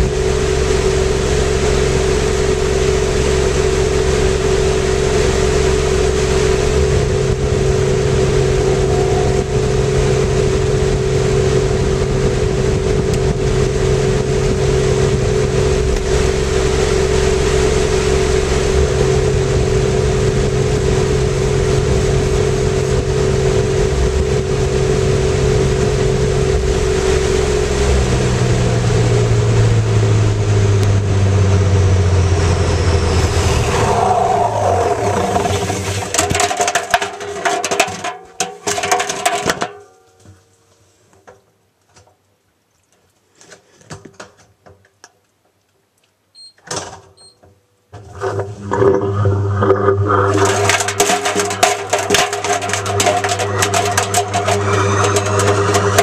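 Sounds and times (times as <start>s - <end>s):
washing machine spinning: 0.2s - 28.8s, 48.0s - 56.0s.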